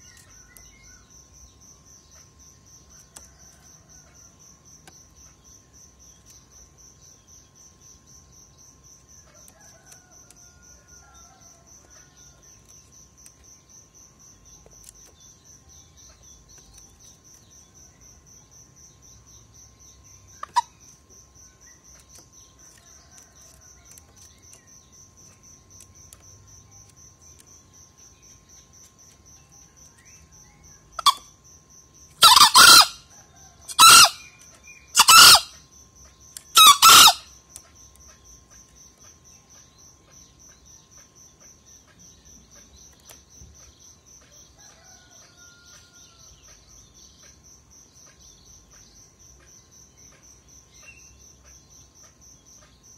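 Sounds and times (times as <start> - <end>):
cricket trill: 0.0 - 52.9
rooster crowing: 32.2 - 34.3, 44.6 - 46.3.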